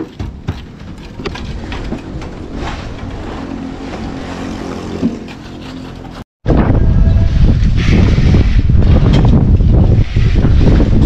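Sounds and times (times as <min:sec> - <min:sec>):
steady engine hum: 0:00.3 - 0:06.2.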